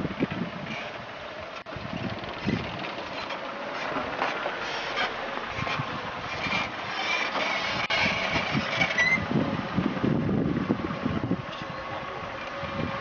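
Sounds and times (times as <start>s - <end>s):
car engine running: 0.0s - 13.0s
tyres on dirt road: 0.0s - 13.0s.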